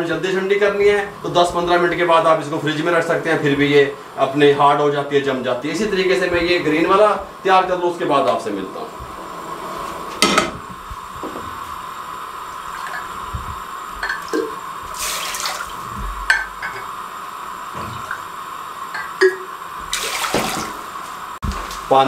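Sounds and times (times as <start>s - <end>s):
jug and pot clicking: 14.0s - 14.6s, 18.9s - 19.5s
water pouring into pot: 14.0s - 16.8s.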